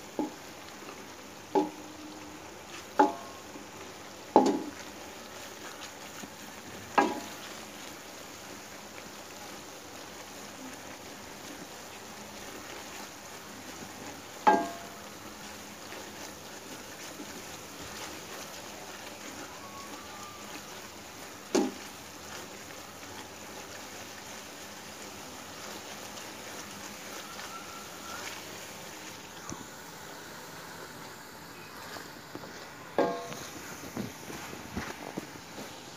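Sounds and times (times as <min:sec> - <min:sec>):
frying hiss: 0:00.0 - 0:35.9
wooden spoon knocking metal pan: 0:01.5 - 0:01.9, 0:03.0 - 0:03.3, 0:04.3 - 0:04.8, 0:07.0 - 0:07.3, 0:14.5 - 0:14.9, 0:21.5 - 0:21.8, 0:33.0 - 0:33.4.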